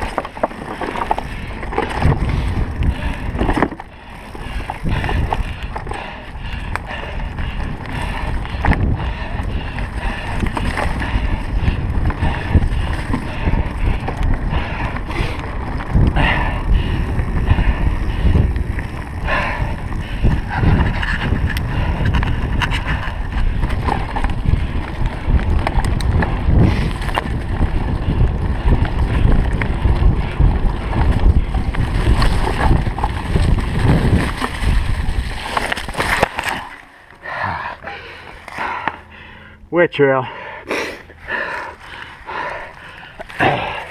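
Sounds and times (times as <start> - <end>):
bike rattling and knocking: 0.0 - 36.8
wind and tyre rumble: 0.0 - 43.9.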